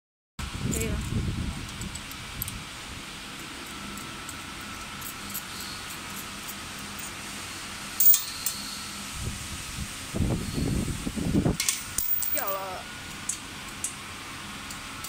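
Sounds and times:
machine humming: 0:00.4 - 0:09.3
metal parts clinking on steel: 0:03.6 - 0:07.1, 0:08.0 - 0:08.8, 0:11.6 - 0:12.7.

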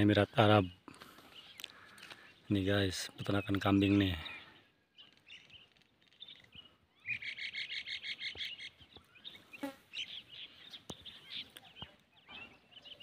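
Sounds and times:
birds chirping: 0:00.0 - 0:13.0
songbird high trill: 0:06.2 - 0:11.5.

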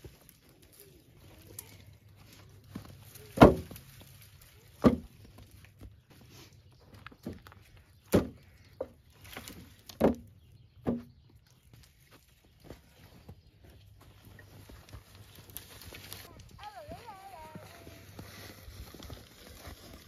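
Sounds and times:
logs thudding into a wheelbarrow: 0:02.7 - 0:05.9, 0:07.2 - 0:11.2.

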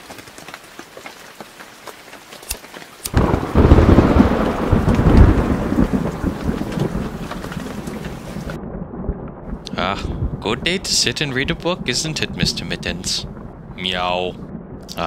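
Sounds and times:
rain falling: 0:00.0 - 0:15.0
raindrops ticking: 0:00.0 - 0:15.0
thunder rumble: 0:03.1 - 0:15.0.

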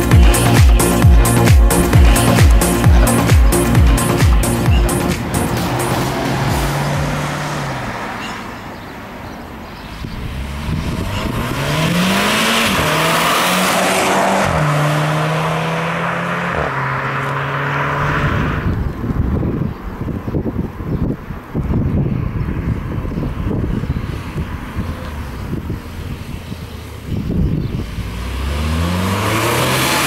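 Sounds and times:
tyre and road noise: 0:00.0 - 0:30.0
car engine accelerating past: 0:04.8 - 0:08.5, 0:10.2 - 0:18.9, 0:27.8 - 0:30.0.

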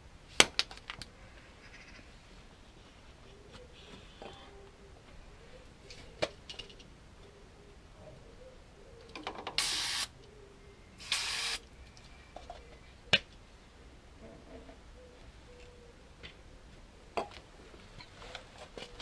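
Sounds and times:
aerosol spray hissing: 0:09.6 - 0:10.1, 0:11.0 - 0:11.6.

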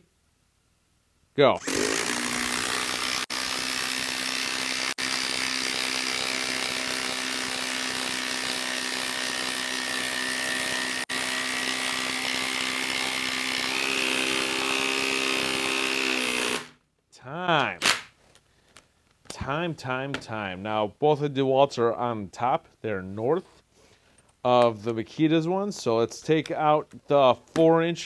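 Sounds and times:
impact driver hammering screw: 0:01.6 - 0:16.8.

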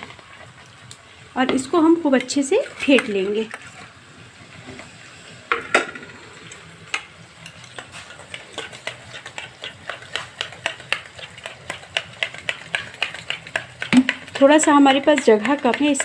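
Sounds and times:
fork knocking on bowl: 0:08.3 - 0:16.0.

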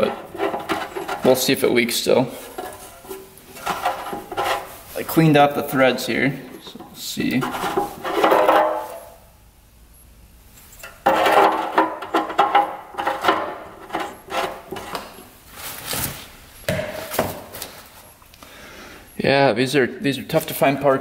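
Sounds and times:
irregular knocks and scrapes: 0:00.0 - 0:01.6, 0:02.3 - 0:05.2, 0:06.5 - 0:09.1, 0:10.6 - 0:17.8
tools clattering on a workbench: 0:06.7 - 0:09.1, 0:10.7 - 0:15.2.

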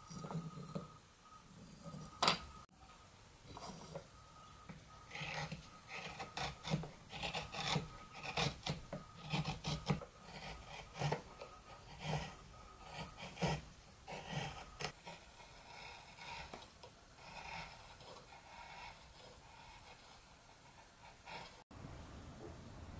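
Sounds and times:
chisel scraping wood: 0:03.5 - 0:04.1, 0:04.7 - 0:21.6.

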